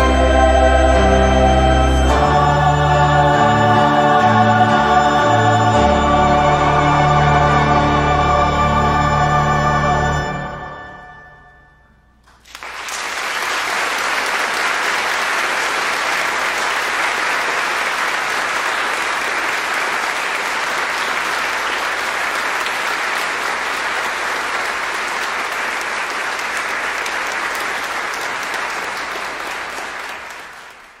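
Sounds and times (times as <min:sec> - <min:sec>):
organ chord ringing: 0:00.0 - 0:12.3
audience applause: 0:12.3 - 0:31.0.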